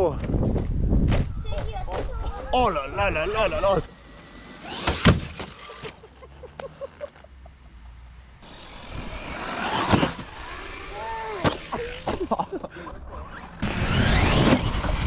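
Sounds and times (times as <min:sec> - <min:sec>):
rc car motor whining: 0:02.8 - 0:06.0, 0:08.4 - 0:12.2, 0:13.1 - 0:15.0.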